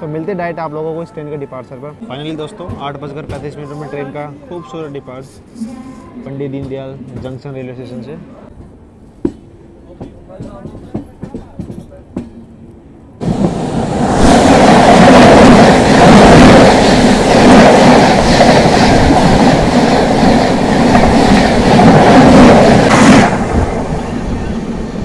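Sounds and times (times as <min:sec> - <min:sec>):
train running noise: 0:00.0 - 0:25.0
passing train wheels clattering: 0:08.6 - 0:25.0.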